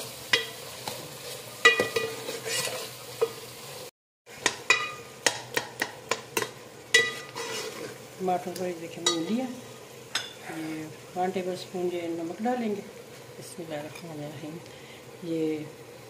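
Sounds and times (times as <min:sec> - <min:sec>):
onions sizzling in oil: 0:00.0 - 0:16.0
metal spoon clinking on pot: 0:01.6 - 0:02.2, 0:04.4 - 0:05.4, 0:06.4 - 0:07.3.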